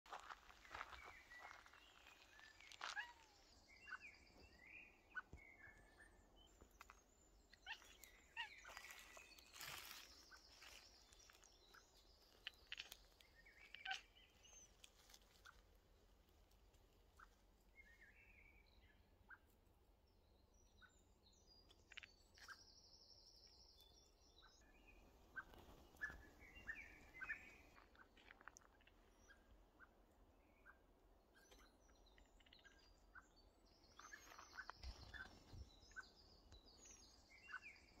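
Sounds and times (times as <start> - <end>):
birds calling: 0.1 - 15.7, 24.4 - 38.0.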